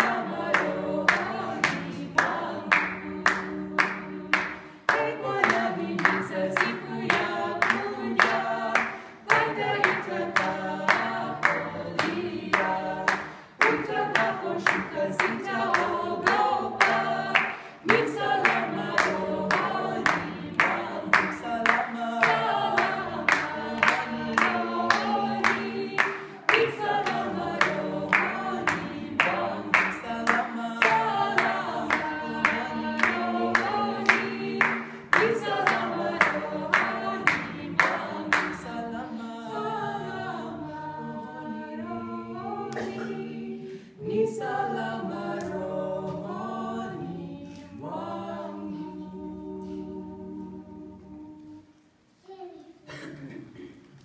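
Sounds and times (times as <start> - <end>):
hand-claps: 0.0 - 38.9
group singing a cappella hymn: 0.0 - 52.2.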